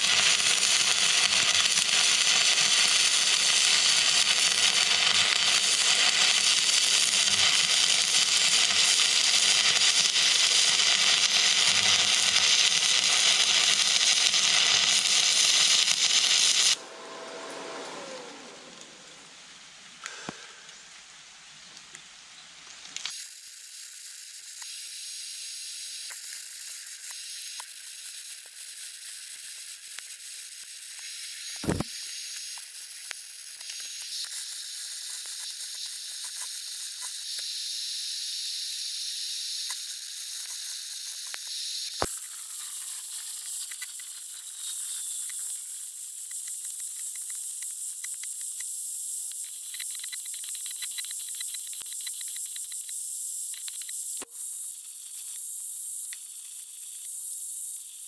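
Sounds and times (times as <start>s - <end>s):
welding arc crackling hiss: 0.0s - 16.8s, 18.2s - 58.0s
sharp click: 31.6s - 31.9s.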